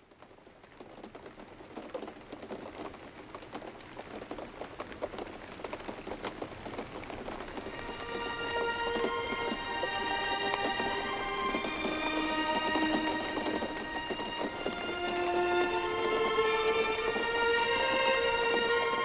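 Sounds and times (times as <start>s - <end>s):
rain drops pattering: 0.0s - 19.0s
music with sustained notes: 7.6s - 19.0s.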